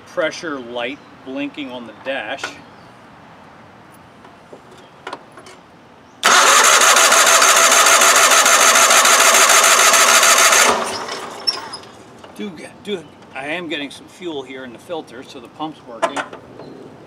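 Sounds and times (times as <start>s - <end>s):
electric starter cranking engine: 6.2s - 12.0s.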